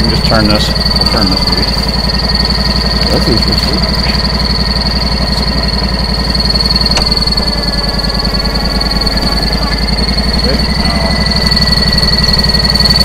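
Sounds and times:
high-pitched whine: 0.0s - 13.0s
sawmill engine throbbing: 0.0s - 13.0s
sharp click: 6.9s - 7.2s.

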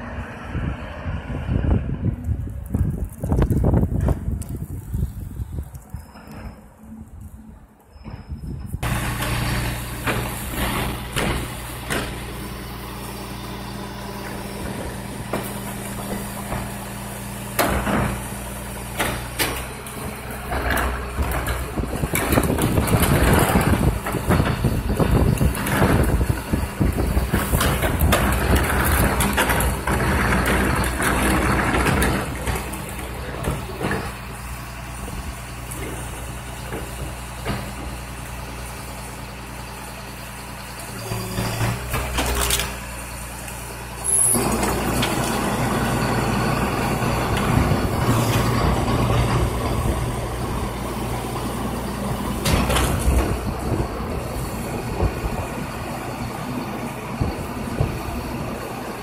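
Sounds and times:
diesel engine running: 0.0s - 59.0s
hydraulic packer blade compacting: 2.2s - 59.0s
engine revving: 8.8s - 34.1s, 44.0s - 56.3s
cart tipped into hopper: 52.1s - 55.6s.

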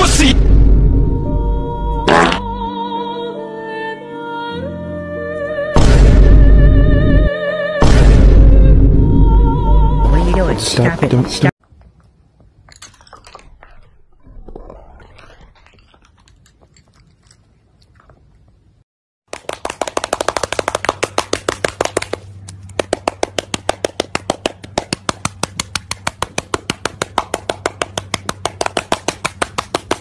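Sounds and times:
crunching of dry kibble: 12.7s - 18.8s.

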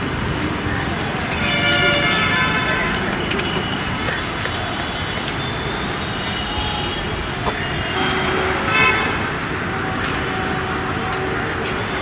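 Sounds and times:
road traffic noise: 0.0s - 12.0s
vehicle horn toot: 1.4s - 9.4s.

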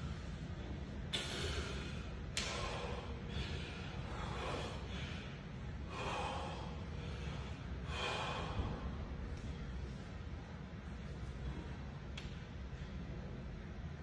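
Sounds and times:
steady low hum: 0.0s - 14.0s
man breathing hard: 1.1s - 9.8s.

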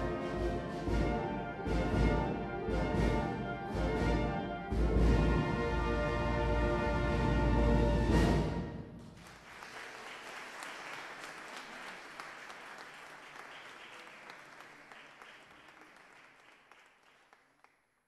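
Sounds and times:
audience applauding: 9.1s - 18.0s.

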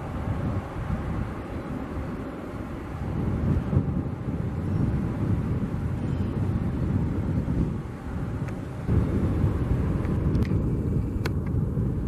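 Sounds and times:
distant jet engines rumbling: 0.0s - 12.0s.

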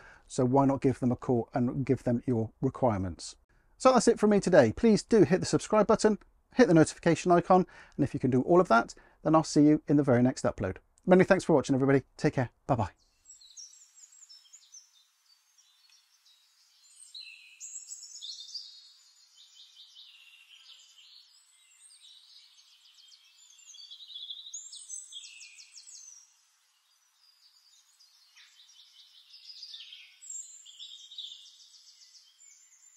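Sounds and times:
songbirds singing: 12.8s - 32.9s.

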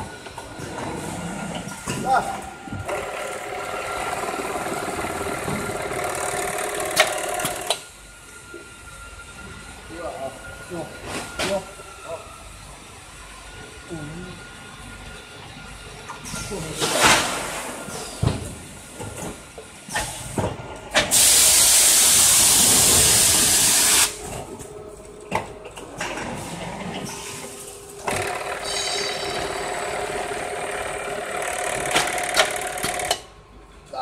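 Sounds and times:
compressed air hiss: 21.1s - 24.2s
machine humming: 21.6s - 33.9s
machine clicks: 31.4s - 33.2s.

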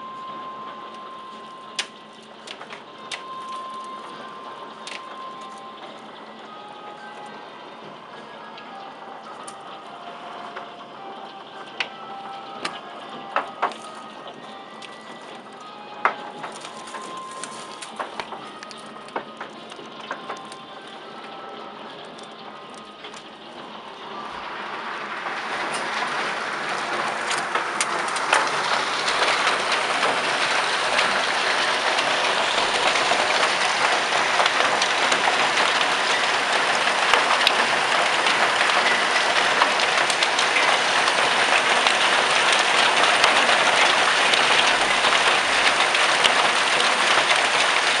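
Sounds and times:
hailstones knocking: 16.0s - 20.6s, 24.4s - 48.0s
heavy rain hissing: 23.8s - 48.0s.

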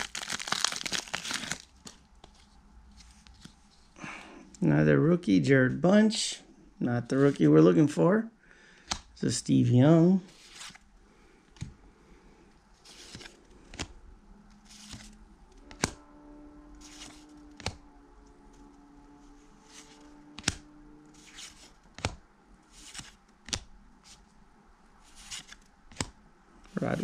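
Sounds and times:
cards swishing: 14.6s - 16.0s, 16.8s - 17.8s, 22.7s - 24.2s, 25.0s - 26.1s.

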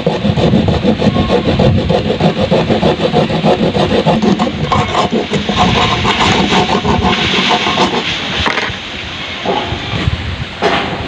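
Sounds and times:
motor running with fast pulse: 0.0s - 8.1s
hacksaw sawing through plastic: 0.0s - 8.8s.

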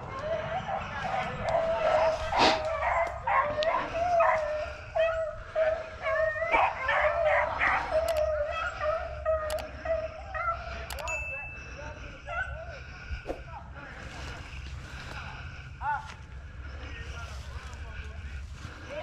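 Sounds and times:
hounds baying and yipping: 0.0s - 13.0s.

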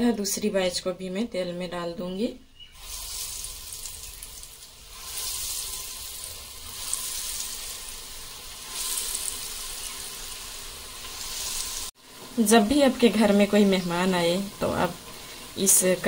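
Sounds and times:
oil sizzling and bubbling: 2.6s - 16.0s.

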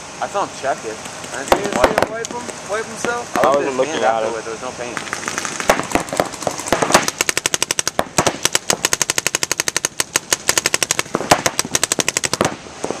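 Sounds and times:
paintball markers firing rapidly: 1.3s - 2.4s, 5.0s - 12.6s.

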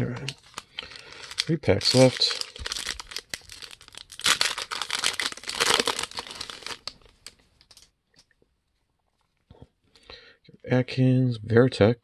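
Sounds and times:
foil wrapper crinkling and tearing: 0.0s - 7.8s.

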